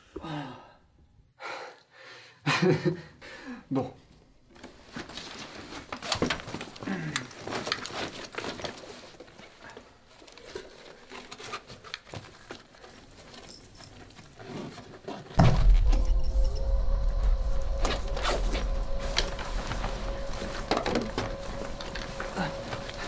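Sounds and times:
rustling: 0:04.6 - 0:23.0
loud low rumble: 0:15.4 - 0:23.0.

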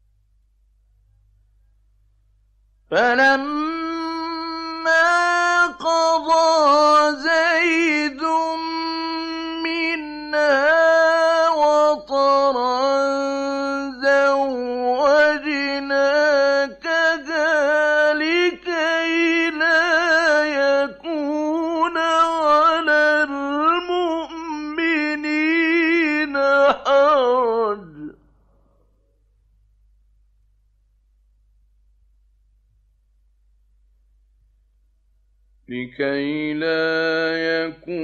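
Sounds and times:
man chanting melodically: 0:02.9 - 0:28.2, 0:35.7 - 0:38.0.

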